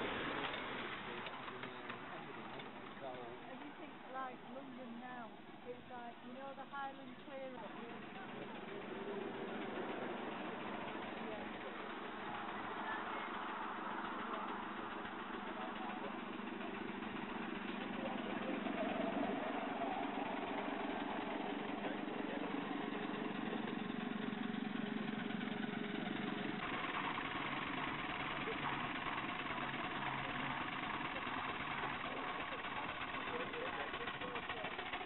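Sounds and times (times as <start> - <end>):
small engine humming: 0.0 - 35.0
faint voices: 0.9 - 23.8, 30.8 - 35.0.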